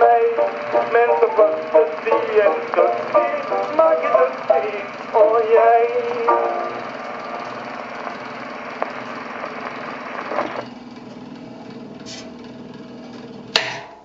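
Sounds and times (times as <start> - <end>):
clicks from run-out groove: 0.0 - 10.6
record needle hiss and crackle: 0.0 - 10.7
turntable motor running: 0.0 - 13.6.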